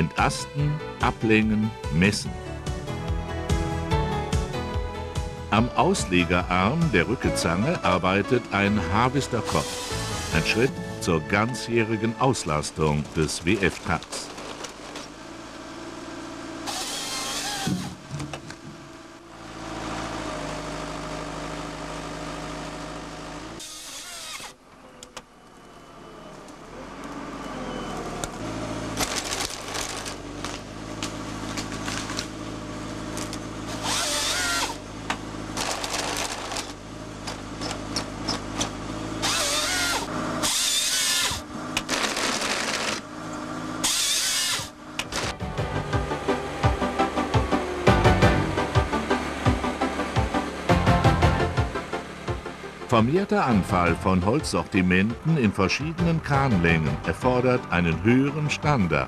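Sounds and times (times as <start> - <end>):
tractor engine running under load: 0.0 - 59.0
harvester head sawing through logs: 7.0 - 19.0, 23.5 - 24.6, 33.1 - 34.9, 35.5 - 43.1, 43.8 - 45.5.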